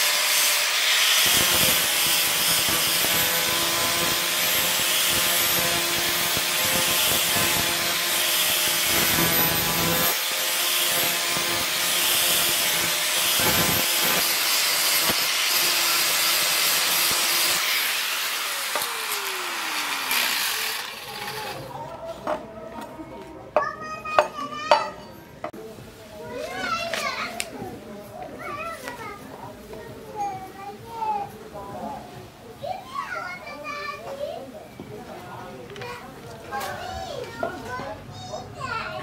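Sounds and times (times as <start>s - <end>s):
angle grinder grinding metal: 0.0s - 21.7s.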